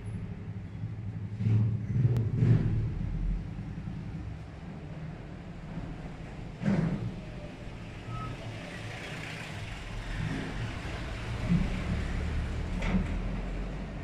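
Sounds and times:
low steady rumble: 0.0 - 7.8.

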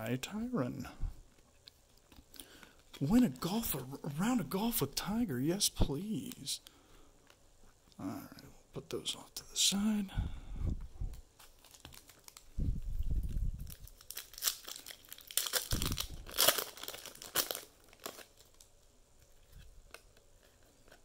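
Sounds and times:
wrapper tearing and crinkling: 11.4 - 12.5, 13.2 - 18.7.

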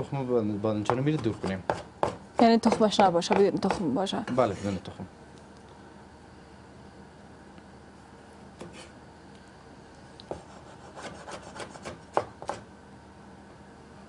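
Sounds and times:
cleaver chopping on wooden board: 0.9 - 3.9.

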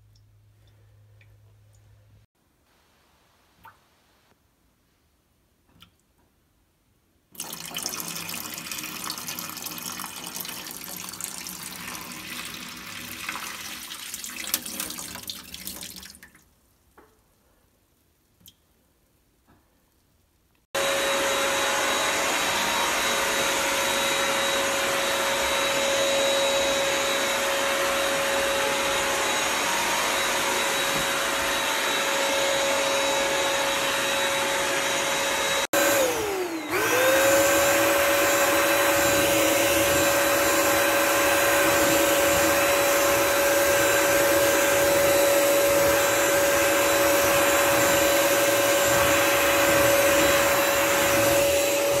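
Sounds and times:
wet-dry vacuum motor running: 20.8 - 52.0.

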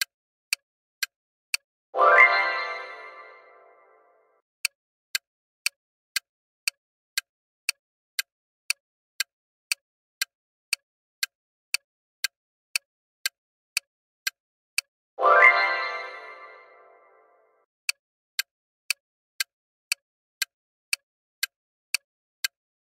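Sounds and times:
timer ticking: 0.0 - 4.0, 6.6 - 17.2.

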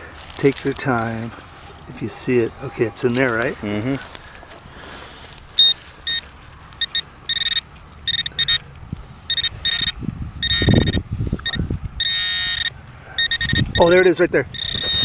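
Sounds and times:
pinpointer probe beeping: 5.6 - 8.7, 9.3 - 15.0.

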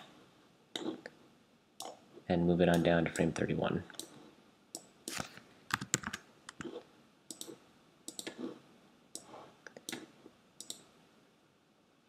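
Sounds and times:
mouse and keyboard clicking: 4.8 - 8.5, 9.2 - 10.9.

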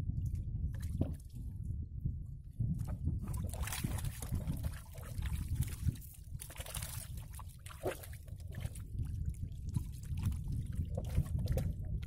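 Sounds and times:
low steady rumble: 0.0 - 12.0
small splashes: 3.3 - 8.8.

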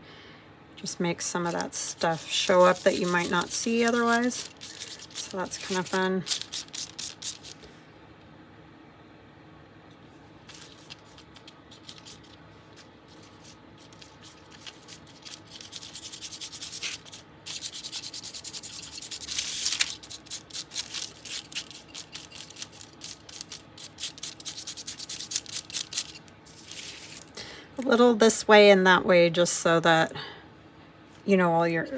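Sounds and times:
hands rubbing paper: 1.4 - 7.6, 10.5 - 27.3.

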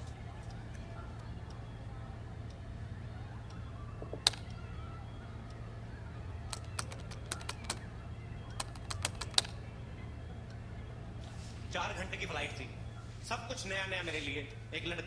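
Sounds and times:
low steady hum: 0.0 - 15.0
keyboard typing: 6.5 - 9.6.

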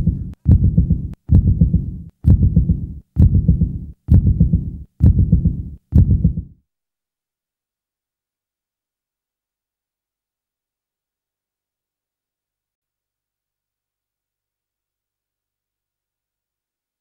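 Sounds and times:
deep bass pulse: 0.0 - 6.5.

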